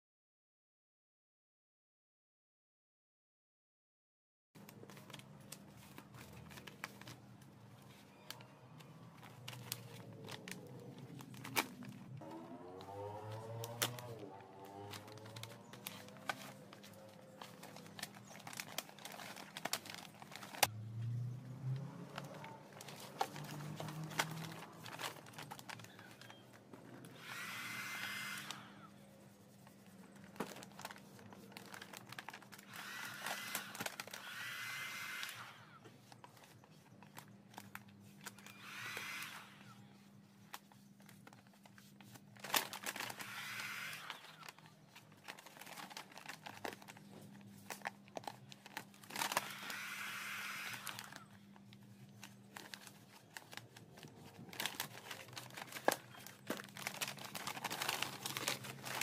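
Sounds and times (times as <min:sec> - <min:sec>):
vinyl sheet crinkling: 0:04.6 - 0:20.7, 0:21.8 - 0:27.1, 0:29.2 - 0:34.2, 0:40.0 - 0:50.2, 0:50.8 - 0:59.0
heat gun blowing: 0:27.0 - 0:28.9, 0:32.7 - 0:35.8, 0:38.4 - 0:39.9, 0:43.1 - 0:44.4, 0:49.3 - 0:51.2.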